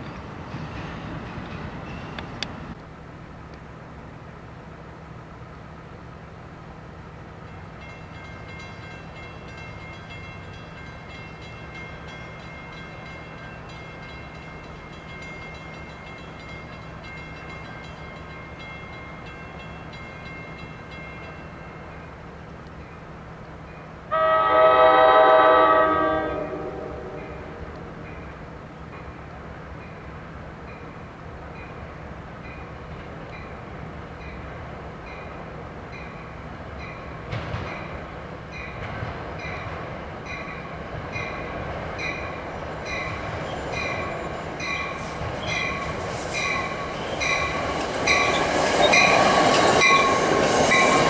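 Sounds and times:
distant train rumble: 0.0s - 51.0s
train air horn blast: 24.1s - 27.7s.

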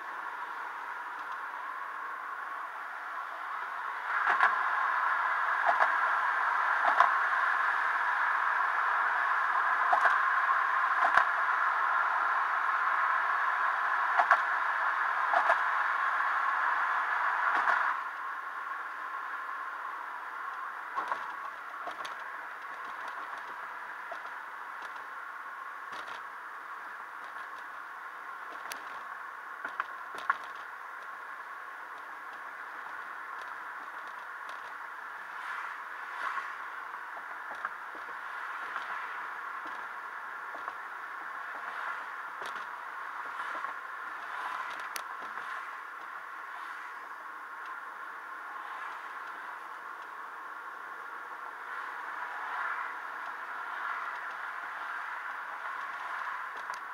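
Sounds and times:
road and wind noise in car: 0.0s - 56.9s
small clicks and rattles: 20.5s - 25.1s, 25.8s - 27.8s, 28.4s - 35.0s, 37.1s - 39.9s, 40.5s - 46.6s, 53.1s - 56.9s.

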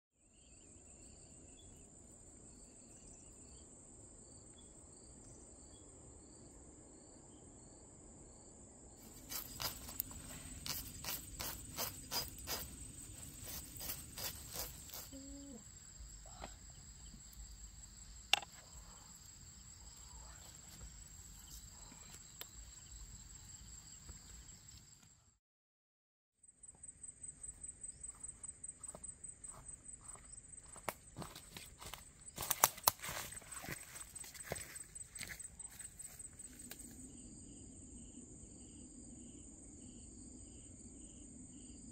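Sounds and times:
insect pulsing low: 0.3s - 25.0s, 26.4s - 41.9s
insects trilling high: 9.0s - 24.8s.

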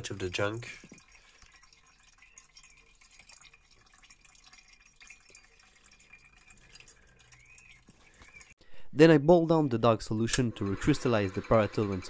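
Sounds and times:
liquid dripping into beaker: 0.0s - 8.6s.

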